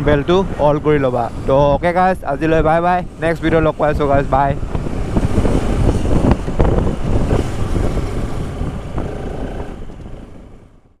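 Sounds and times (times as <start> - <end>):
wind rushing over microphone: 0.0 - 11.0
motorcycle running: 2.5 - 11.0.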